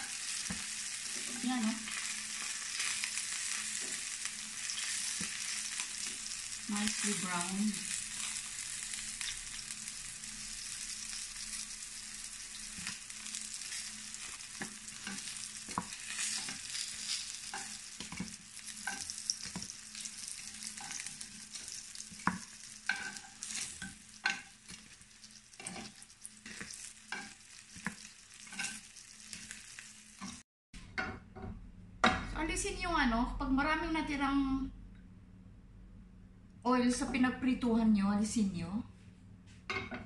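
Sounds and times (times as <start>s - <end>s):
oil sizzling in a pan: 0.0s - 30.4s.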